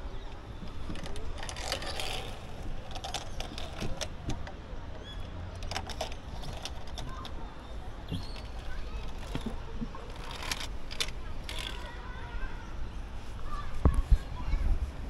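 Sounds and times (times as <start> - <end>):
carabiners clicking on steel cable: 0.2 - 12.0.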